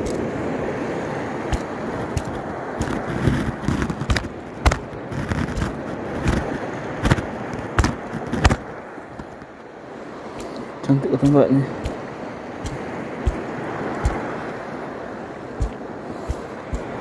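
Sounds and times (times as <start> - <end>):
surf: 0.0 - 17.0
wind: 0.0 - 17.0
sharp knocks and clicks: 1.5 - 8.6, 12.6 - 14.3, 15.6 - 17.0.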